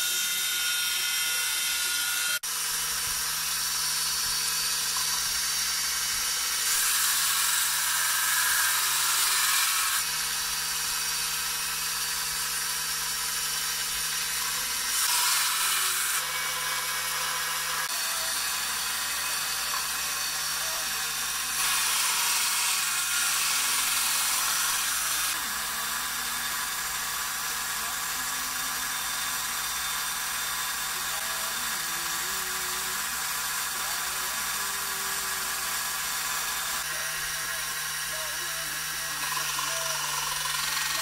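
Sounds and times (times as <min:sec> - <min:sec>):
belt sander running: 0:00.0 - 0:41.0
steel ground against sanding belt: 0:00.0 - 0:41.0.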